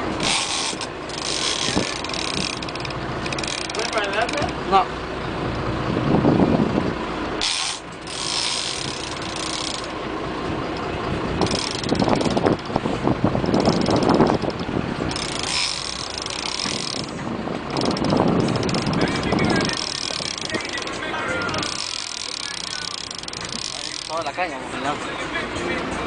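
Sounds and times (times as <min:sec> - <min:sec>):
boat engine rumble: 0:00.0 - 0:26.0
water: 0:00.0 - 0:26.0
fishing reel ratcheting: 0:00.2 - 0:04.6, 0:07.4 - 0:09.9, 0:10.7 - 0:12.8, 0:13.4 - 0:24.4.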